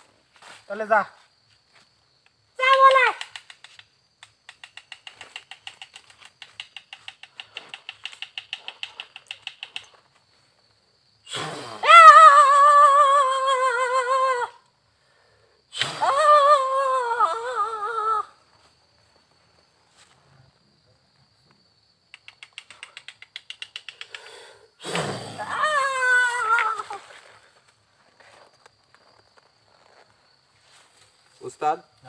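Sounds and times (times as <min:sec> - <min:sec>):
voice wailing: 0:25.4 - 0:27.0.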